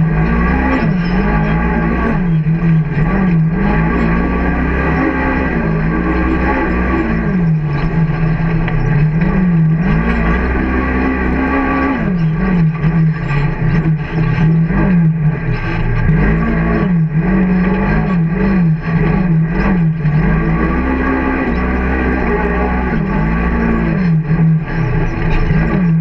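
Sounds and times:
off-road vehicle engine revving: 0.0 - 26.0.

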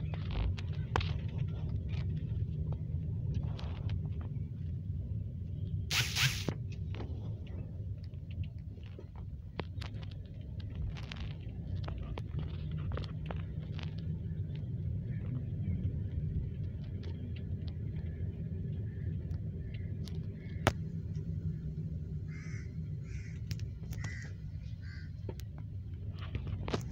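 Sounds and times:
car driving rumble: 0.0 - 26.9
crow cawing: 22.3 - 23.4, 24.0 - 25.2.

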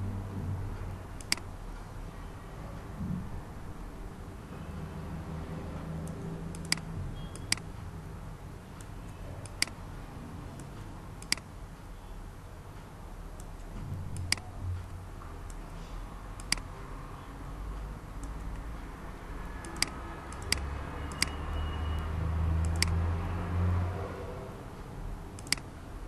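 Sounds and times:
computer mouse clicking: 0.8 - 1.5, 5.8 - 7.8, 8.8 - 9.8, 10.6 - 11.5, 13.4 - 15.8, 16.4 - 16.7, 17.8 - 18.8, 19.4 - 23.0, 25.3 - 25.8.

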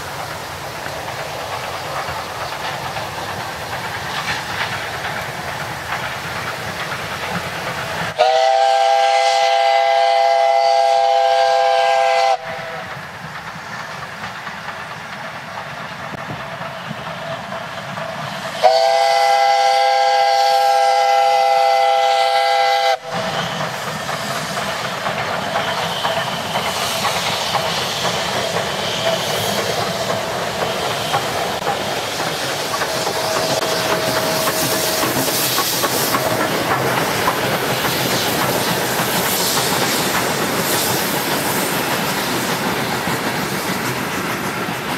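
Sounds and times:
train running on track: 0.0 - 44.9
steam whistle blasts: 8.1 - 12.8, 18.6 - 23.6.

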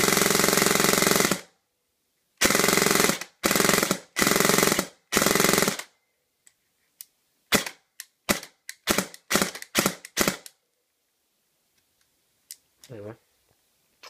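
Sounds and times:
airsoft gun firing bursts: 0.0 - 1.5, 2.4 - 5.9, 7.5 - 10.5.

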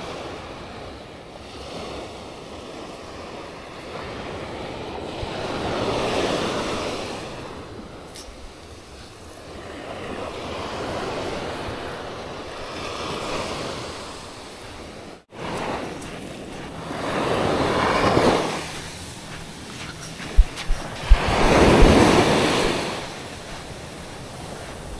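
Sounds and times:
waves washing ashore: 0.0 - 24.9
wind on microphone: 15.4 - 24.9.

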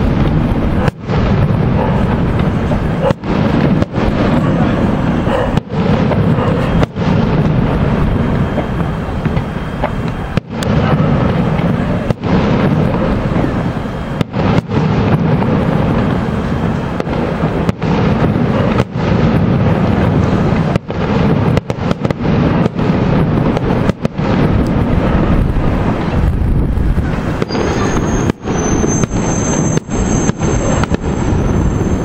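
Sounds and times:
fireworks bursts and booms: 0.0 - 32.0.

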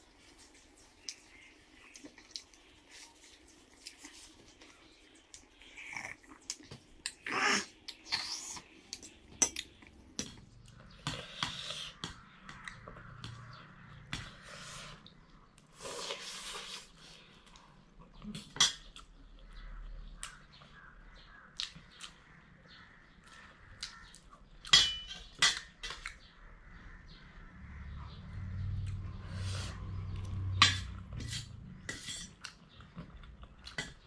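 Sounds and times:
chewing: 0.6 - 7.2
fork scraping metal plate: 30.6 - 32.4.

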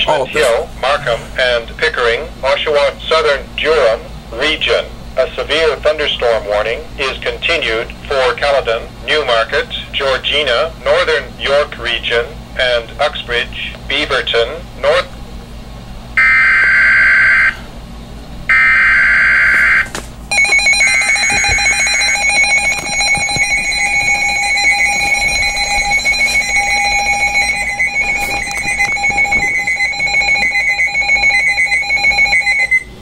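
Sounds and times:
radio alarm beeping rapidly: 16.2 - 17.6, 18.5 - 32.9.

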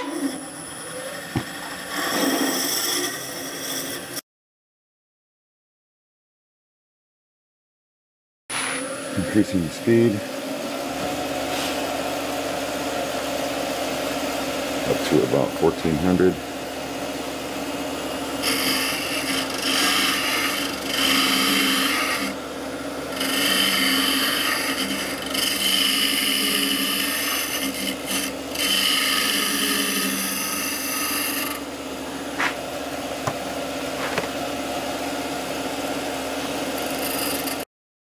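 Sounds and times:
tool scraping spinning wood: 0.0 - 4.2, 18.3 - 34.6, 36.3 - 37.6
lathe humming: 8.5 - 37.6.

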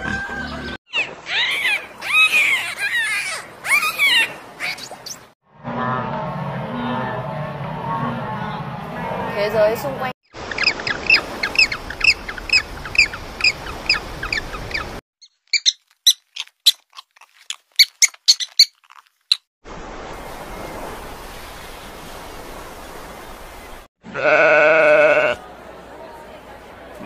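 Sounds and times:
quick high chirps: 15.2 - 19.4
rat squeaking: 15.2 - 19.4.

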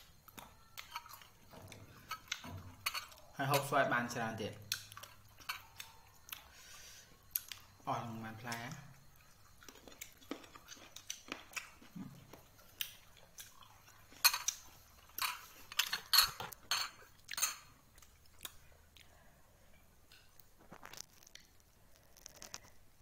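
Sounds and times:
clinks and scrapes against plate: 0.8 - 3.8, 14.1 - 17.7
person biting and chewing: 9.2 - 19.1, 20.2 - 22.8.

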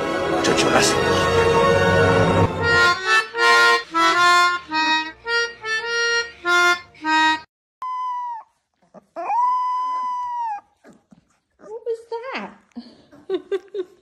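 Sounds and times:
puppy howling: 7.8 - 11.0.

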